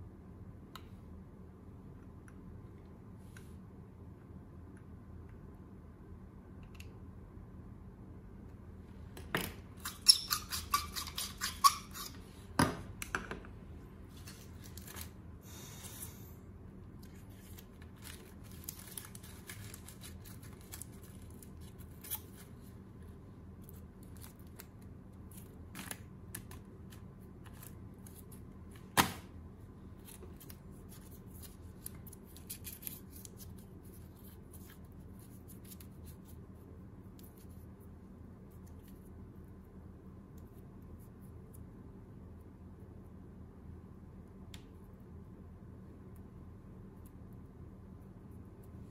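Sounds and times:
metal foil crinkling: 0:17.0 - 0:22.6.

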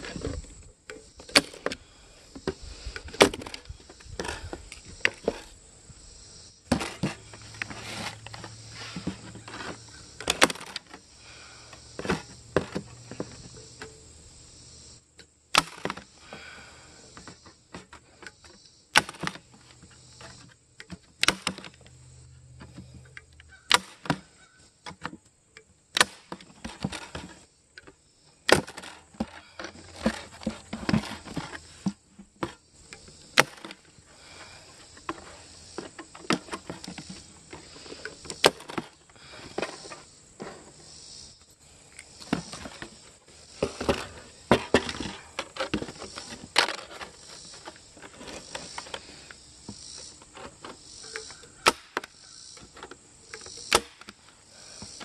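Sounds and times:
clicks and rustles of handling: 0:17.1 - 0:40.8, 0:41.9 - 0:55.0.

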